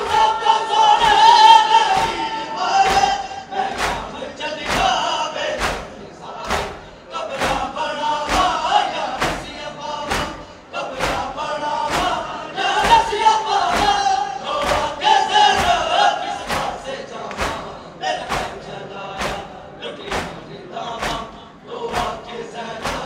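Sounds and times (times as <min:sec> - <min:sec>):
crowd of men chanting: 0:00.0 - 0:23.0
chest-beating thumps: 0:19.2 - 0:19.5, 0:20.1 - 0:22.2.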